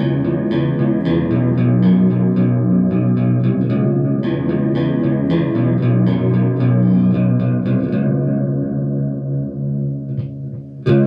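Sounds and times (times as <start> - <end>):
electric guitar strummed with chorus: 0.0 - 11.0.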